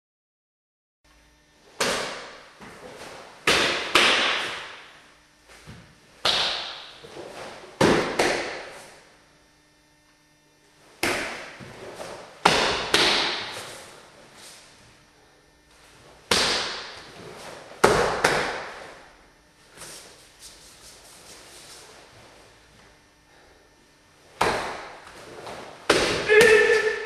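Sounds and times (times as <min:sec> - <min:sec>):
feet striking floor: 0:01.8 - 0:09.0, 0:10.9 - 0:14.8, 0:15.9 - 0:19.0, 0:24.3 - 0:27.0.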